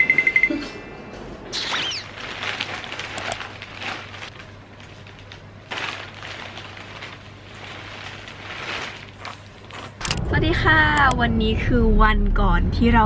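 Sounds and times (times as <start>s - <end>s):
low steady hum: 0.0s - 13.0s
plastic cape rustling: 1.6s - 10.0s
hands working dye through hair: 1.8s - 10.0s.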